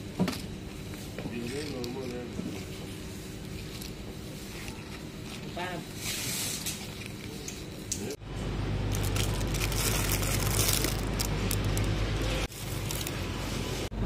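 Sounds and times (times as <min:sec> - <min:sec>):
steady low hum: 0:00.0 - 0:14.0
plastic packaging rustling: 0:08.9 - 0:13.9.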